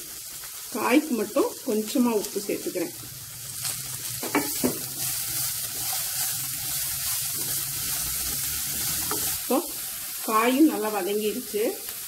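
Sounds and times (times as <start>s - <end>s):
vegetables sizzling in oil: 0.0s - 12.0s
spatula stirring: 3.5s - 10.1s.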